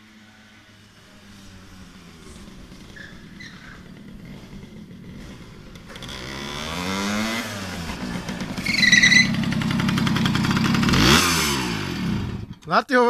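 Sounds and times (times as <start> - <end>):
moped engine putter: 7.7 - 11.1.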